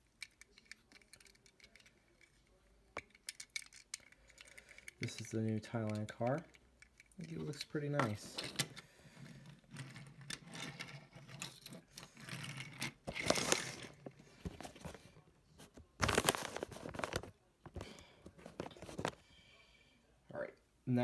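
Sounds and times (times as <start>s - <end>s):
cardboard and plastic rustling: 7.2s - 19.2s.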